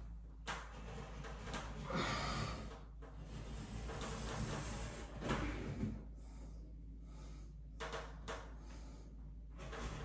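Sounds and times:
razor blade scraping wallpaper: 0.0s - 6.0s, 8.7s - 10.0s.

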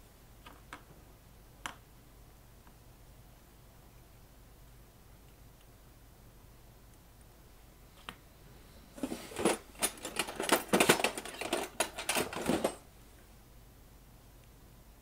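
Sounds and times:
clicking and rattling of small parts: 9.0s - 12.8s.

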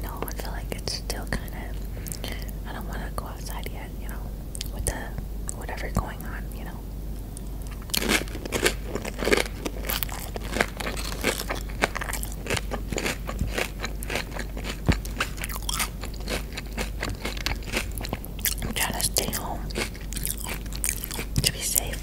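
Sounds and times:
chips crunching while chewed: 7.7s - 22.0s.

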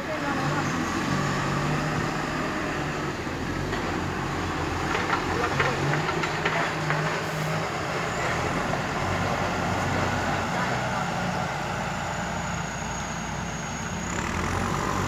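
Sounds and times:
truck diesel engine running: 0.0s - 15.0s
sharp knocks and clatters: 4.8s - 7.3s.

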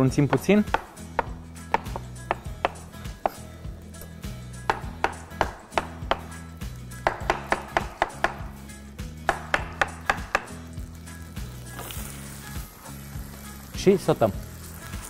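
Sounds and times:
background music: 0.0s - 15.0s
knife chopping on wooden board: 0.3s - 3.4s, 4.7s - 6.4s, 7.0s - 8.5s, 9.2s - 10.6s.

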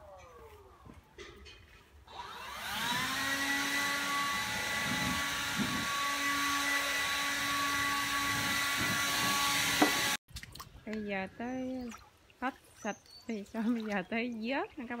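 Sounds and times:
electric fan motor whining: 2.1s - 10.2s.

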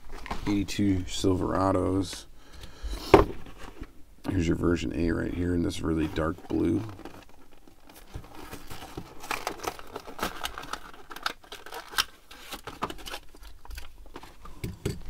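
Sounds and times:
plastic blister pack crinkling: 6.0s - 14.4s
cardboard tearing: 6.2s - 14.0s.

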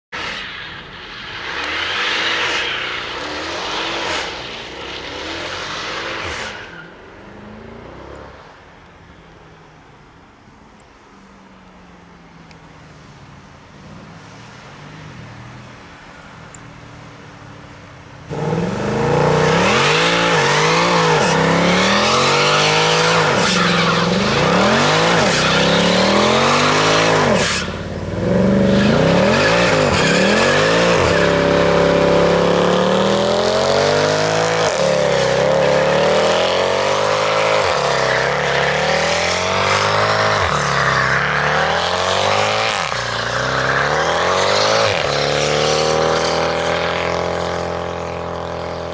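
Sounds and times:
car engine revving: 0.2s - 8.5s, 18.3s - 48.9s
tyres squealing: 19.1s - 32.4s.

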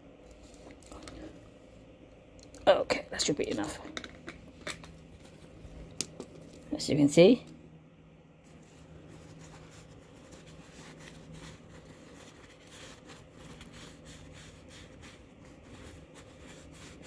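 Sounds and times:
faint low hum: 0.0s - 17.0s
rubbing and handling noises: 3.4s - 6.8s, 8.4s - 17.0s.

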